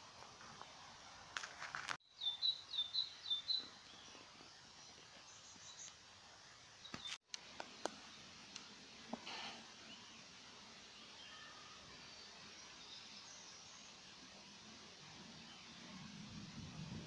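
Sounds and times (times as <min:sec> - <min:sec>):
steady background hiss: 0:00.0 - 0:17.0
small songbird chirping: 0:02.0 - 0:08.7, 0:09.7 - 0:14.3.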